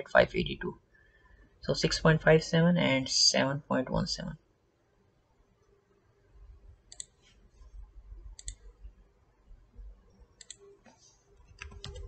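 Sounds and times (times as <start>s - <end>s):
computer mouse clicking: 6.9s - 7.3s, 8.2s - 8.9s, 10.1s - 12.0s.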